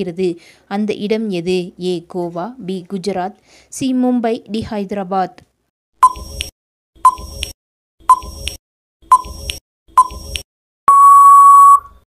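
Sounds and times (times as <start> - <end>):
short electronic beeps: 6.0 - 12.0
long steady beep: 10.9 - 12.0.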